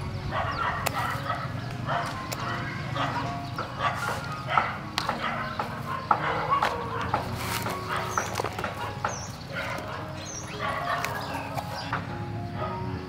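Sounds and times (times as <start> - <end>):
scissors snipping stems: 0.8 - 2.6, 3.6 - 12.1.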